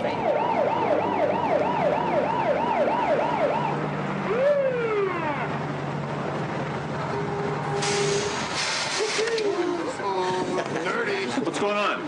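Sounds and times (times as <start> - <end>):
police siren wailing: 0.0 - 5.7
vehicle engine humming: 0.0 - 11.4.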